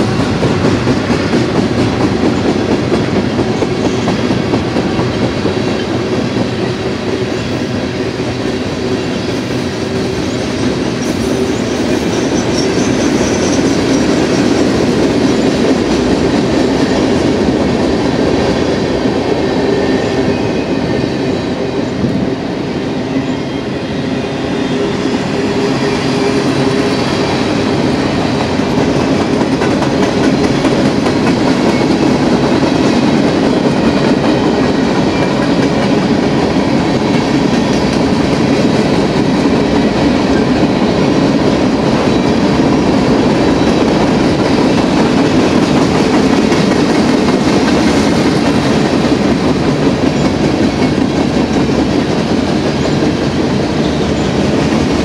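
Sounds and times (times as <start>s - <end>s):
train wheels on rails: 0.0s - 55.0s.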